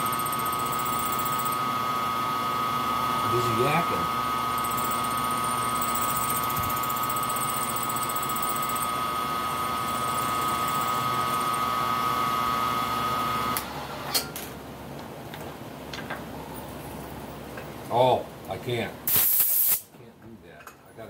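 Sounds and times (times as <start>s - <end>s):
milling machine spindle whine: 0.0s - 13.7s.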